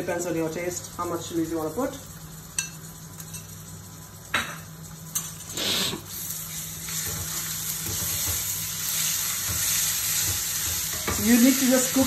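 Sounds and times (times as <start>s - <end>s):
food sizzling in a frying pan: 0.0s - 12.0s
spatula stirring pan: 6.8s - 12.0s.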